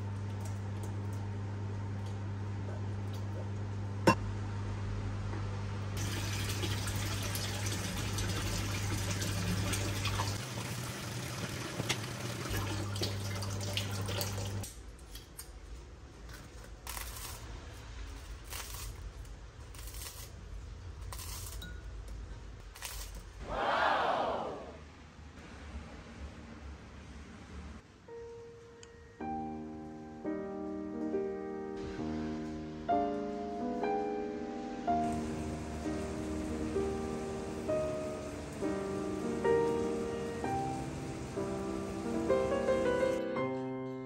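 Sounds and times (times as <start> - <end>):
hiss like running water: 35.0 - 43.2.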